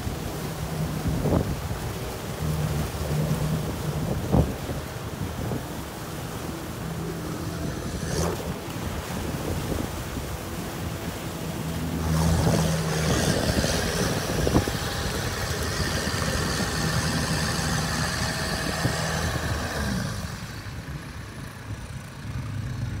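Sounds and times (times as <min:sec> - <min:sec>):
tyres splashing water: 0:00.0 - 0:21.6
vehicle engine running: 0:00.0 - 0:23.0.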